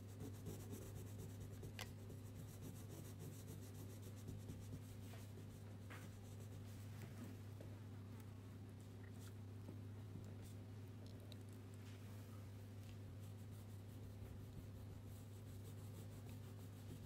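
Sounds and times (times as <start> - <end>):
crayon scratching on paper: 0.0 - 5.6
steady low hum: 0.0 - 17.0.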